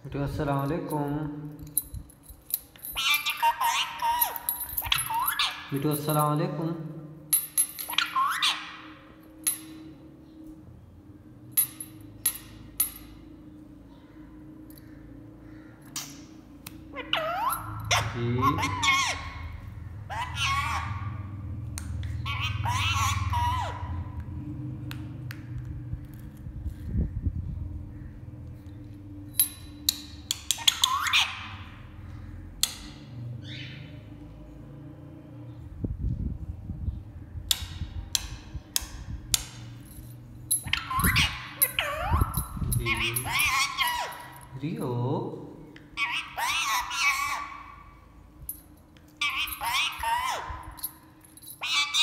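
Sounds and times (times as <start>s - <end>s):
parrot squawk: 3.0s - 5.7s, 7.9s - 9.1s, 16.9s - 21.4s, 22.2s - 24.2s, 30.6s - 31.9s, 40.6s - 44.4s, 46.0s - 48.0s, 49.2s - 50.7s, 51.6s - 52.0s.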